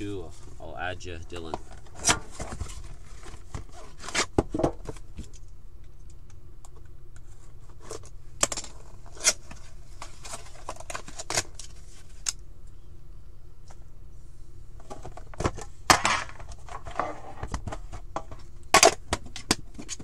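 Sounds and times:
cardboard packaging handled: 1.4s - 5.2s.

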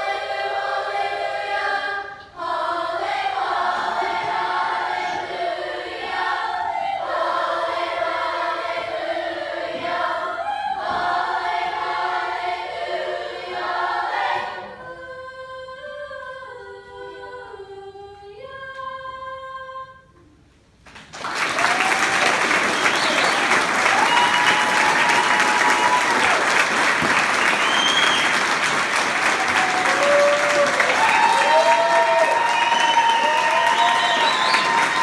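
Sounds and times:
youth choir singing: 0.0s - 20.0s, 23.1s - 35.0s
audience applauding: 20.9s - 35.0s
whoops and whistles: 22.7s - 26.3s, 27.4s - 28.4s, 30.0s - 35.0s.

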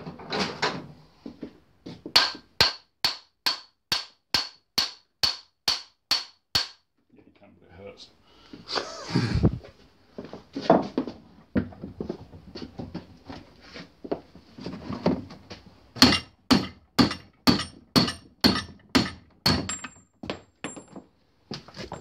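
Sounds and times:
hammer knocking on metal bearing: 16.0s - 19.8s.

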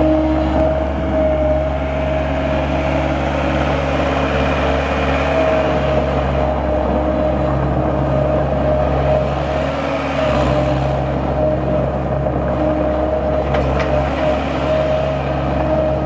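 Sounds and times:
constant whine: 0.0s - 16.0s
diesel engine running: 0.0s - 16.0s.

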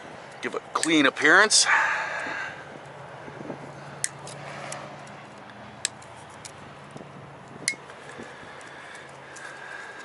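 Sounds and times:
cutters snipping zip ties: 4.0s - 10.0s.

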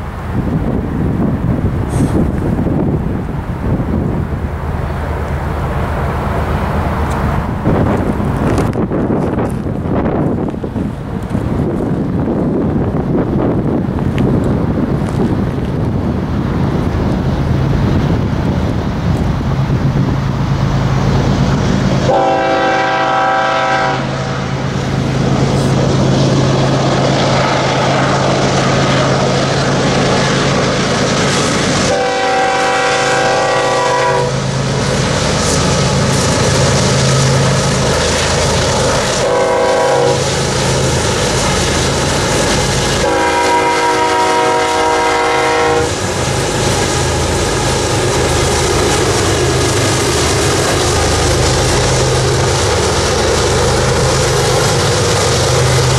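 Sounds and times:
diesel engines droning: 0.0s - 55.9s
train horn blasts: 22.0s - 24.6s, 31.8s - 34.5s, 39.1s - 40.2s, 43.0s - 46.0s.

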